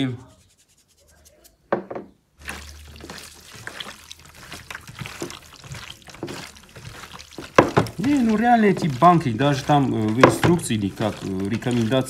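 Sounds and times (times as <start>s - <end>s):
hands squelching raw livers: 2.4s - 12.0s.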